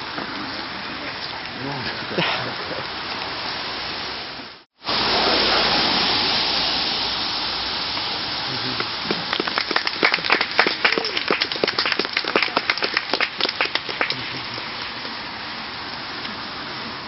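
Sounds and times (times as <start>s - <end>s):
steady rushing noise: 0.0s - 17.0s
small group clapping: 8.6s - 15.2s.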